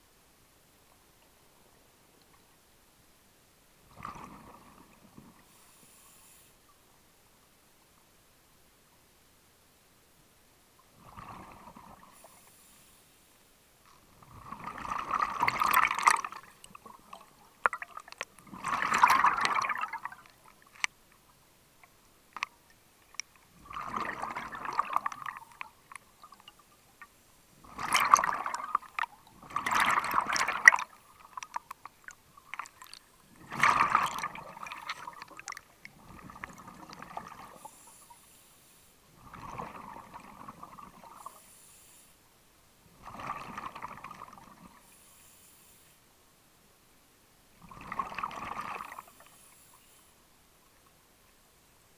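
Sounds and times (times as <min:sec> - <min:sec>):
diver's regulator bubbling: 0:14.2 - 0:20.9, 0:23.1 - 0:26.7, 0:27.6 - 0:37.8, 0:39.2 - 0:41.3, 0:43.0 - 0:44.8, 0:47.6 - 0:49.1.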